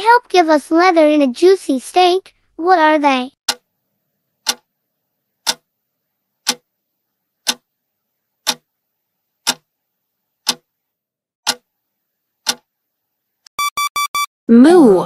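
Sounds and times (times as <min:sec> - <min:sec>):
clock ticking: 0:04.4 - 0:04.6, 0:05.4 - 0:05.7, 0:06.4 - 0:06.6, 0:07.4 - 0:07.6, 0:08.4 - 0:08.6, 0:09.4 - 0:09.6, 0:10.4 - 0:10.7, 0:11.4 - 0:11.6, 0:12.4 - 0:12.6.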